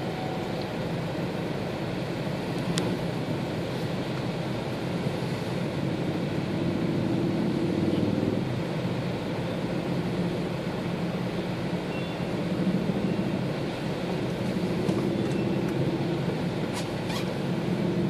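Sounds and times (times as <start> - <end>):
motorcycle engines droning: 5.2 - 18.0.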